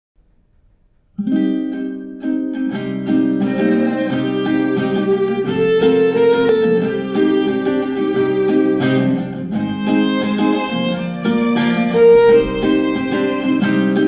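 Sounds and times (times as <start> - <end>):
strummed acoustic guitar: 1.1 - 14.0
held violin notes: 3.1 - 14.0.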